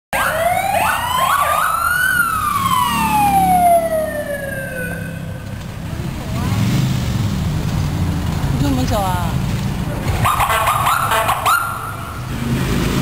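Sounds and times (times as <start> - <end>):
police siren wailing: 0.1 - 5.6, 10.2 - 12.2
siren whooping: 0.2 - 5.6
vehicle engines rumbling: 0.2 - 13.0.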